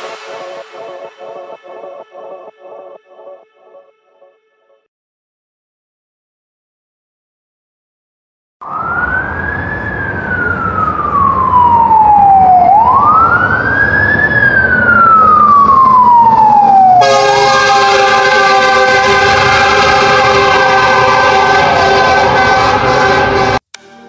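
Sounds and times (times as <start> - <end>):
truck horn blast: 0.0 - 1.5, 17.0 - 24.0
fire engine siren wailing: 0.0 - 4.8, 8.6 - 23.6.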